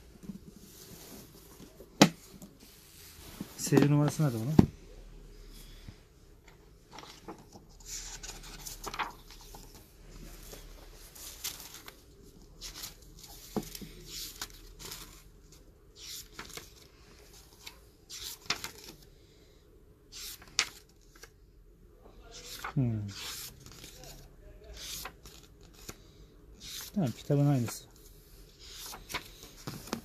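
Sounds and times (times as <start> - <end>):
book pages turning: 6.9 - 15.3, 15.9 - 19.0, 22.3 - 24.2, 24.8 - 26.0, 26.6 - 30.0.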